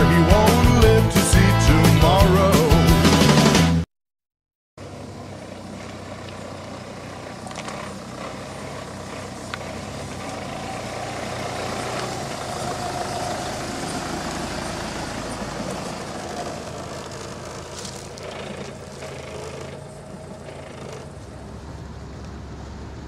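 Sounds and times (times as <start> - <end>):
vehicle engine driving slowly: 4.8 - 23.0.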